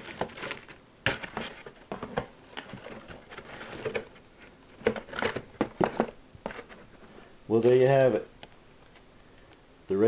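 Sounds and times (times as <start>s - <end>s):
plastic bags crinkling: 0.0s - 4.1s.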